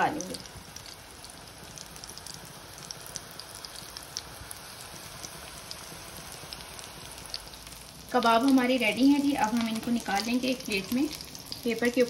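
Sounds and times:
small pops and crackles: 0:00.0 - 0:08.6
meat sizzling in oil: 0:00.0 - 0:12.0.

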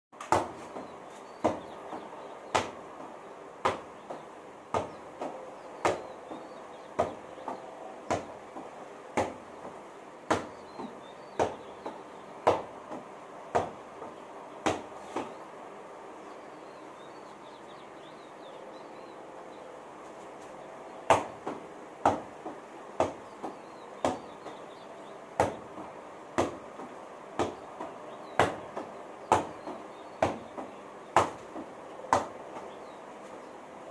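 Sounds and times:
volleyball hit by hand: 0:00.2 - 0:15.4, 0:21.1 - 0:24.7, 0:25.4 - 0:32.7.

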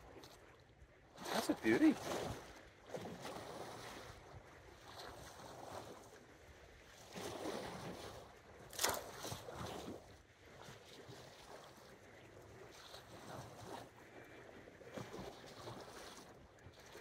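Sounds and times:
small waves washing against rocks: 0:01.2 - 0:04.2.

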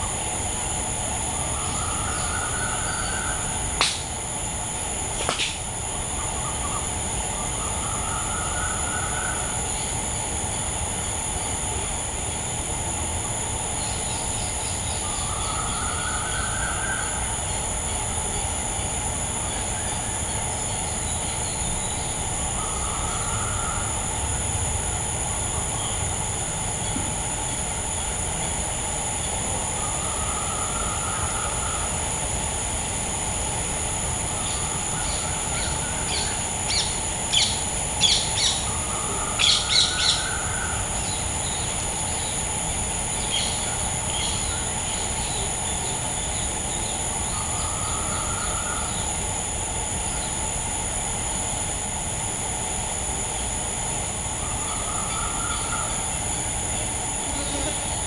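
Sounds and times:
high-pitched insect drone: 0:00.0 - 0:58.0
birds chirping: 0:33.9 - 0:49.3, 0:53.3 - 0:58.0.

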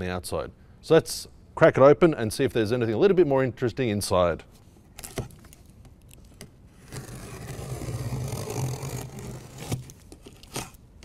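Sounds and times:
knife ripping packing tape: 0:06.8 - 0:10.9.

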